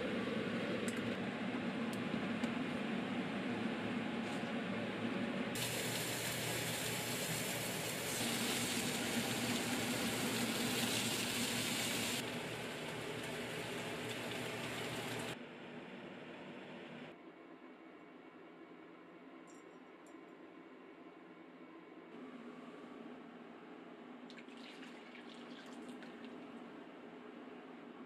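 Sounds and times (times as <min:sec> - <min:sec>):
pork sizzling in a frying pan: 0:05.6 - 0:15.3.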